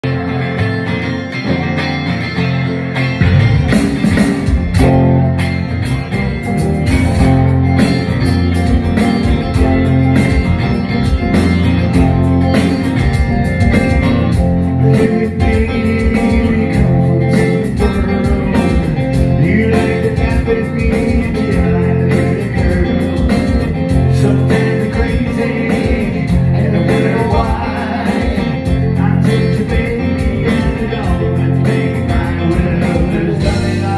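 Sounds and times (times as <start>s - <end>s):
electric bass: 0.0s - 33.9s
electric guitar: 0.0s - 33.9s
steady drum beat: 3.0s - 33.9s.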